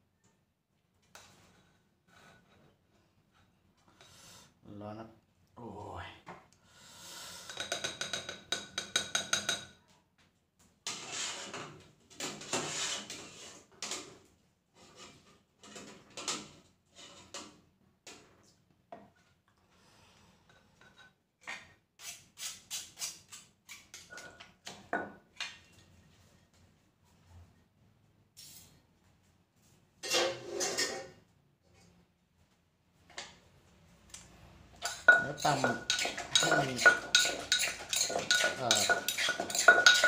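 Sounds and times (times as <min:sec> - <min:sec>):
clinking and scraping of pot: 0:07.4 - 0:09.8, 0:30.0 - 0:31.2, 0:34.8 - 0:40.0
wooden pestle pounding in mortar: 0:34.8 - 0:40.0.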